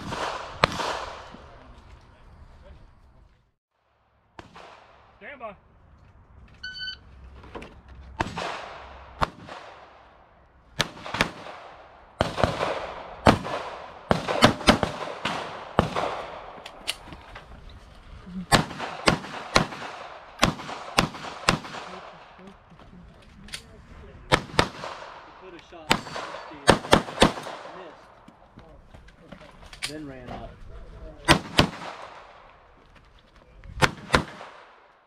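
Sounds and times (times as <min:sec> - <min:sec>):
handgun shots: 0:12.2 - 0:16.4.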